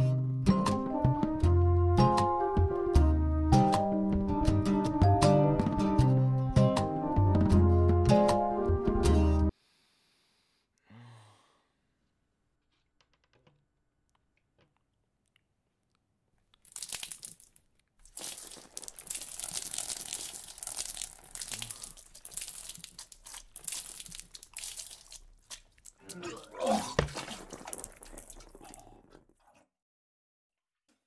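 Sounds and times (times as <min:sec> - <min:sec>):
milk splashing and gurgling: 0:16.6 - 0:29.3.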